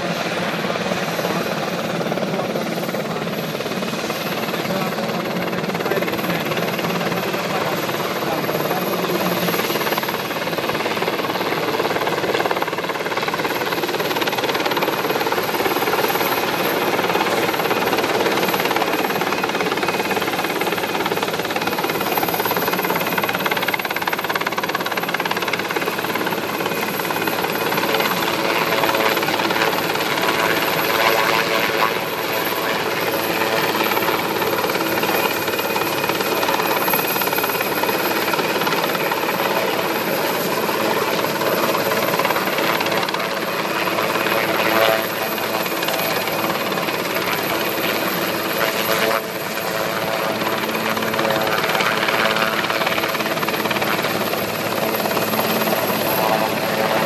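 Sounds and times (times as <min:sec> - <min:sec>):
helicopter rotor noise: 0:00.0 - 0:57.0.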